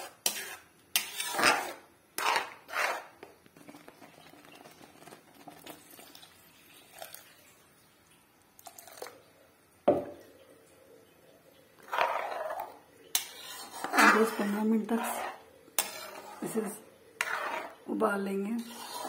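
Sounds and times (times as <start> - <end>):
ladle scraping metal pan: 0.0 - 5.9, 11.8 - 17.9, 18.5 - 19.0
faint wet stirring sounds: 0.0 - 19.0.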